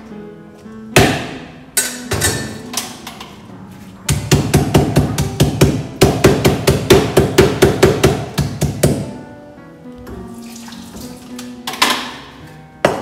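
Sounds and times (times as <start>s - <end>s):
mallet pounding on wooden board: 1.0s - 1.4s, 4.1s - 9.2s.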